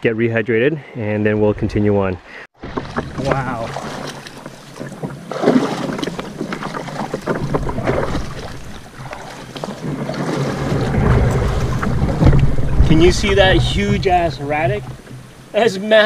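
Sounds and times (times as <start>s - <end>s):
wind buffeting microphone: 5.6s - 15.5s
knocks and clicks: 9.5s - 13.5s
low rumble: 10.4s - 15.0s.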